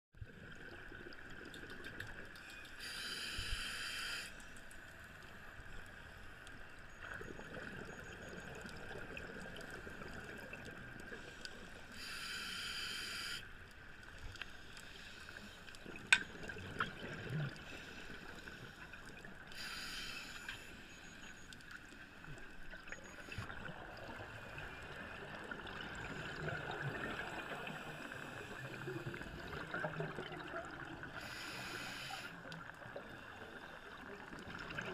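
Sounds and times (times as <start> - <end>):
steady underwater hum: 0.2 - 34.9
exhaled bubbles rushing underwater: 22.8 - 31.2, 32.6 - 34.9.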